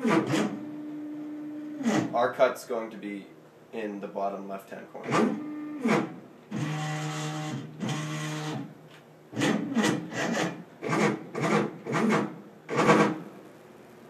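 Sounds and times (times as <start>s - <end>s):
stepper motors whining: 5.1s - 8.7s.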